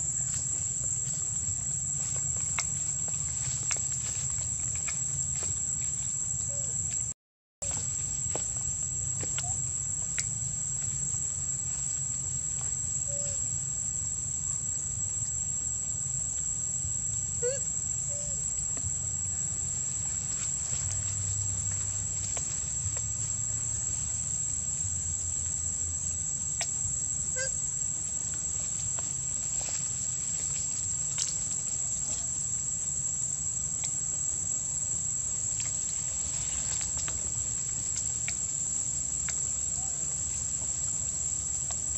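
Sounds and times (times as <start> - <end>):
insects droning: 0.0 - 41.9.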